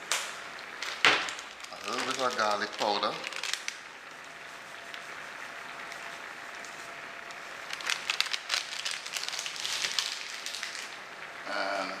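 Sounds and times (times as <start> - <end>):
plastic packet crinkling: 0.6 - 4.0, 5.8 - 11.0.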